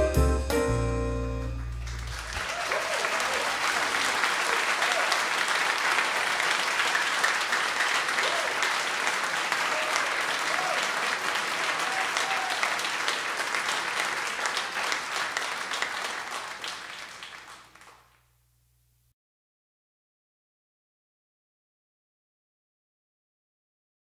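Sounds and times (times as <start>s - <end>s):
audience applauding: 1.5s - 18.2s.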